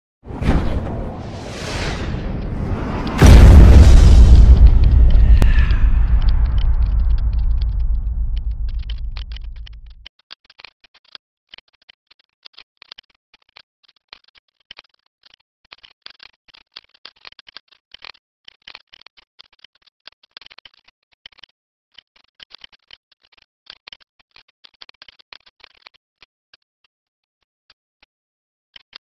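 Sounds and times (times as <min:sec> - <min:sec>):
loud low boom: 0:00.3 - 0:10.0.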